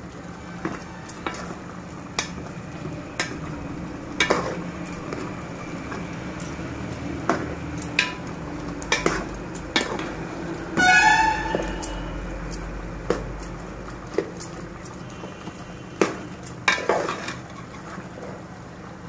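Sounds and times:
spoon knocking metal pot: 0:04.2 - 0:05.2, 0:08.9 - 0:10.1.

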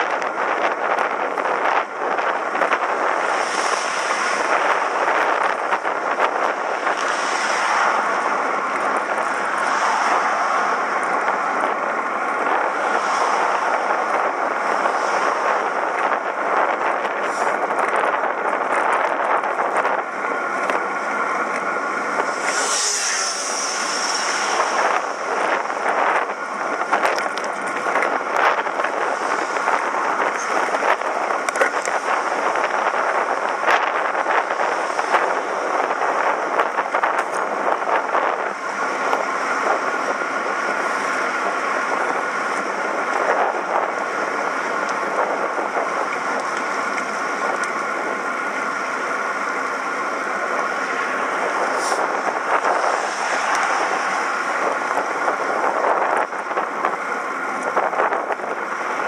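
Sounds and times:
road noise: 0:00.0 - 0:59.0
wind on microphone: 0:00.0 - 0:59.0
loud hiss: 0:22.3 - 0:25.2.

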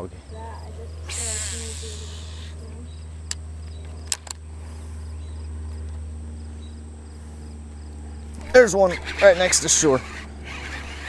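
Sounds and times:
steady low hum: 0:00.0 - 0:11.0
insect chirps: 0:00.1 - 0:08.6
sharp clicks: 0:03.3 - 0:04.4.

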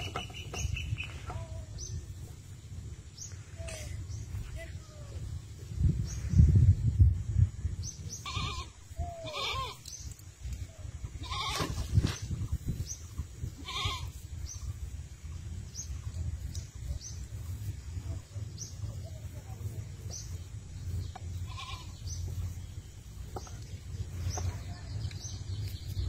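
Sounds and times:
low rumble: 0:00.6 - 0:09.3, 0:10.2 - 0:26.0
goats bleating: 0:08.2 - 0:09.8, 0:11.2 - 0:11.7, 0:13.6 - 0:14.2, 0:21.4 - 0:22.0.

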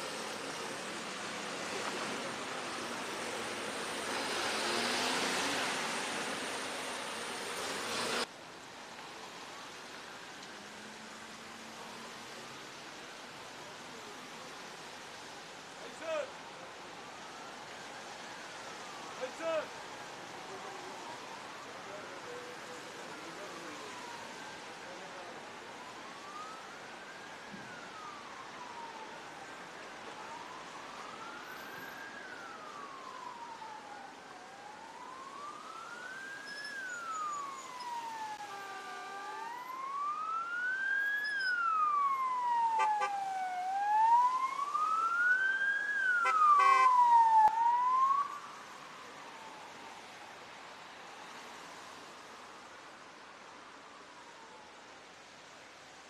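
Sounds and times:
emergency siren wailing: 0:17.0 - 0:53.0.

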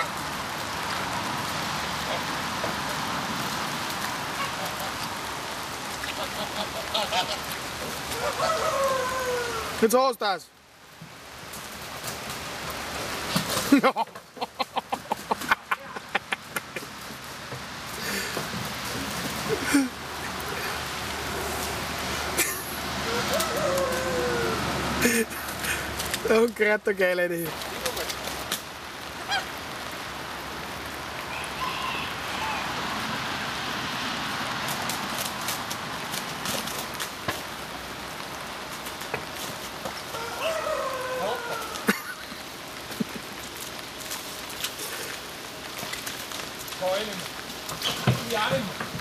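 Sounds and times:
outdoor hiss: 0:00.0 - 0:49.0
rain falling on wet ground: 0:00.0 - 0:49.0
goose honking: 0:04.3 - 0:05.0, 0:06.1 - 0:09.6
faint goose calls: 0:06.1 - 0:07.5.

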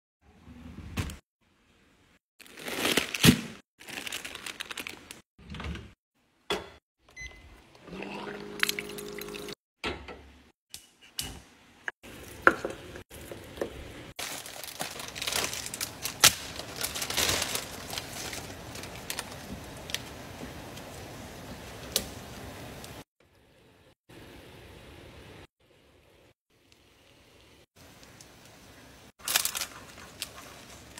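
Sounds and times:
plastic packets crinkling: 0:02.4 - 0:05.2, 0:14.2 - 0:20.2, 0:29.2 - 0:30.9.

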